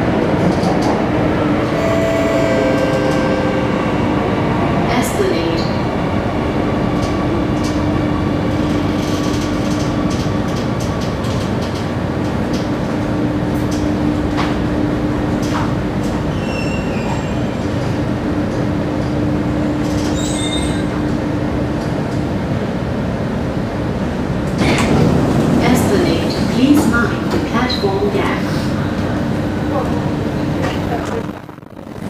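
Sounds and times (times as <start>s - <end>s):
train cabin rumble and hum: 0.0s - 32.0s
train wheel squeals: 16.3s - 17.5s, 20.1s - 21.0s.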